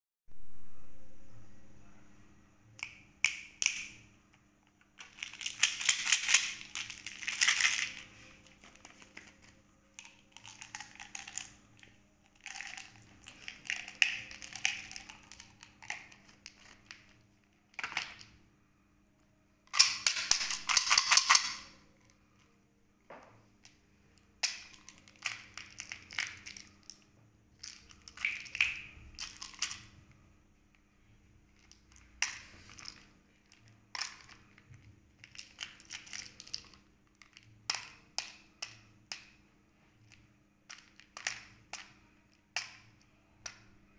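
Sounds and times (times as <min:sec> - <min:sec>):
plastic clattering: 0:04.6 - 0:18.3, 0:19.7 - 0:21.8, 0:24.4 - 0:27.0
plastic capsules rattling clicks: 0:04.7 - 0:17.2, 0:19.7 - 0:21.7, 0:24.4 - 0:27.0, 0:27.6 - 0:29.9, 0:31.6 - 0:39.3, 0:40.1 - 0:41.9
wrapper crinkling: 0:04.7 - 0:18.2, 0:24.4 - 0:27.0, 0:27.6 - 0:29.9, 0:31.6 - 0:37.8.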